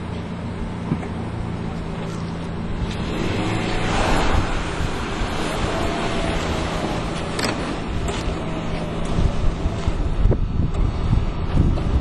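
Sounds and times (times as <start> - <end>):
engine running steadily: 0.0 - 12.0
wind on microphone: 2.6 - 12.0.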